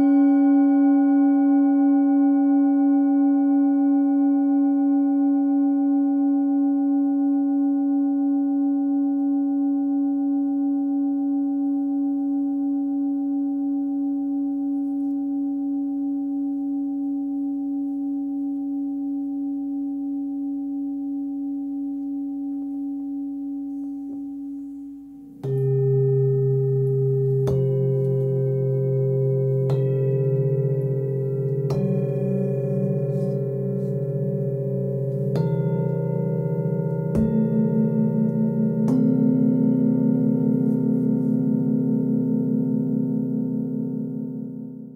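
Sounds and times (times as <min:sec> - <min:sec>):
singing bowl ringing: 0:00.0 - 0:44.9
deeper bowl ringing: 0:20.5 - 0:44.9.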